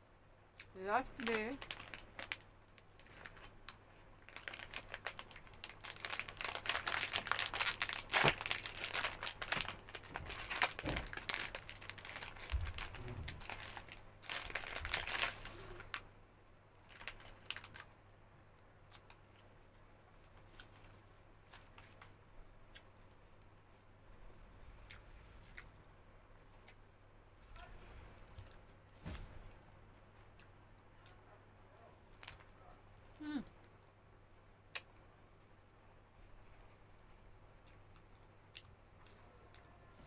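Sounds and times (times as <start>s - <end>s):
plastic wrapper crinkling: 1.1s - 16.0s, 16.8s - 17.9s, 32.1s - 32.5s.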